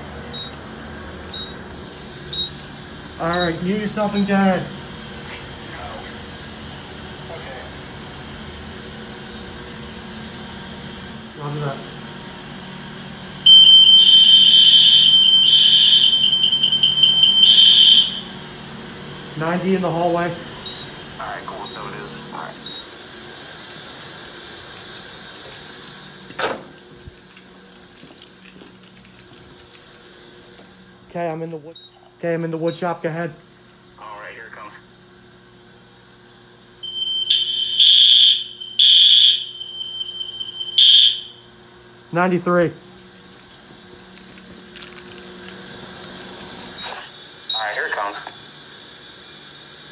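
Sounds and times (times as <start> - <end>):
fire alarm high-pitched tone: 13.4 - 18.4, 36.8 - 41.5.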